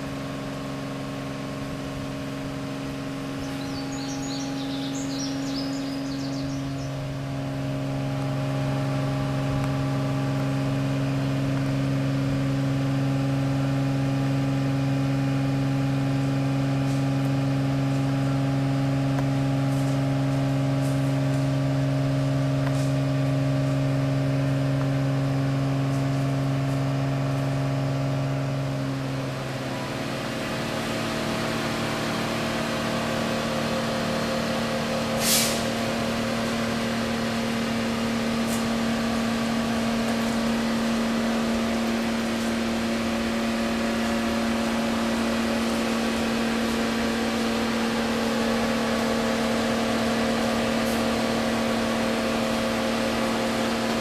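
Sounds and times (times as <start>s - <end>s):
engine droning: 0.0s - 54.0s
short hiss: 35.2s - 35.8s.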